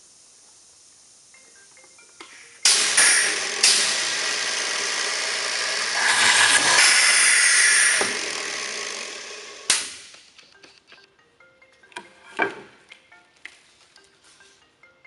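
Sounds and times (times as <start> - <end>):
drills boring into wood: 2.7 - 9.7.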